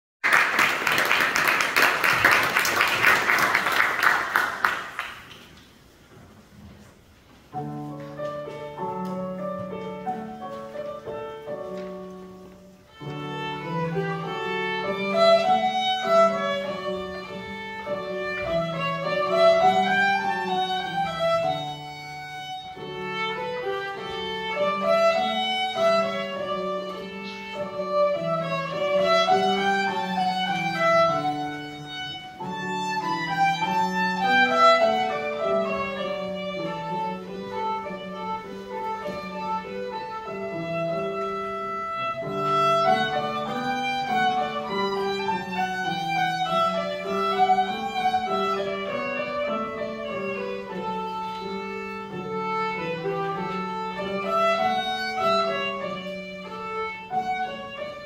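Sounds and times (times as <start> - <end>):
audience applause: 0.2 - 5.6
grand piano: 0.2 - 58.0
solo violin: 7.5 - 58.0.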